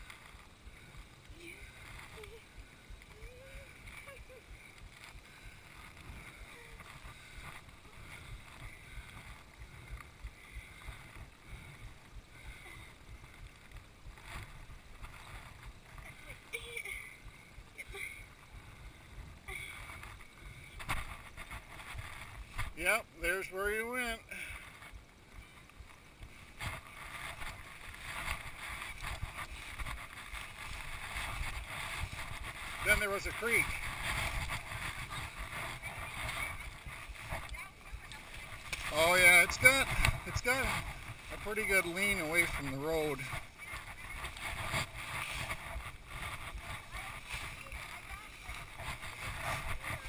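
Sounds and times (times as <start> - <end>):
faint rustling: 0.0 - 50.0
wind rumble on microphone: 0.0 - 50.0
footsteps on gravel and weeds: 26.3 - 50.0.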